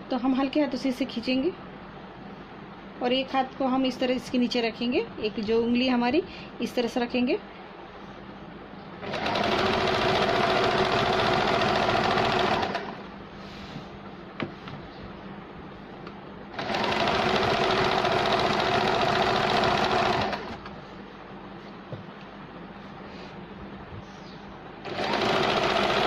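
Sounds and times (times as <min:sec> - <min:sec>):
sewing machine running: 0:09.0 - 0:13.1, 0:16.5 - 0:20.7, 0:24.8 - 0:26.0.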